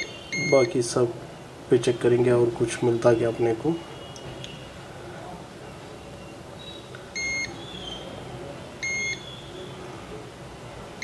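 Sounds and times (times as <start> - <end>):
multimeter continuity beeps: 0.0 - 0.8, 6.0 - 8.0, 8.8 - 9.6.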